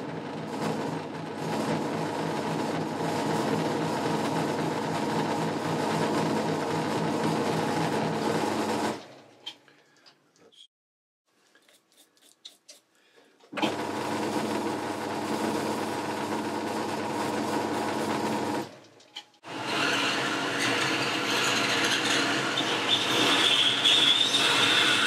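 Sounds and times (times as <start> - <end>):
metal lathe running: 19.4 - 25.0
hand file on spinning metal: 19.5 - 25.0.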